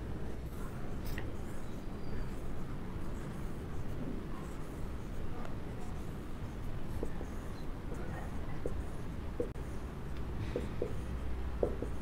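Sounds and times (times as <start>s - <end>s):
marker squeaking on whiteboard: 1.0s - 3.8s, 5.8s - 9.8s, 10.6s - 12.0s.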